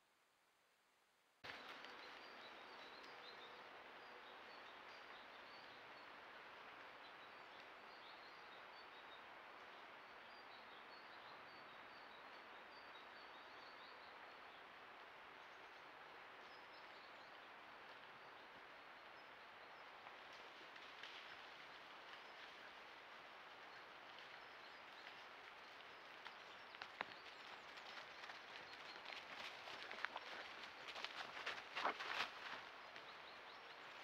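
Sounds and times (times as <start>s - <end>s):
small birds chirping: 22.1s - 34.0s.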